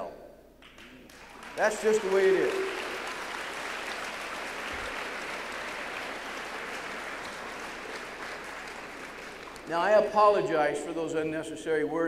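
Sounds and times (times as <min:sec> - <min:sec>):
large audience applauding: 0:00.6 - 0:10.4.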